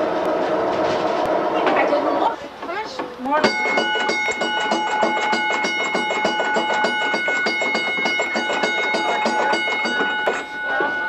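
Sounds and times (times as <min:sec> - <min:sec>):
streetcar bell ringing: 0:03.4 - 0:11.0.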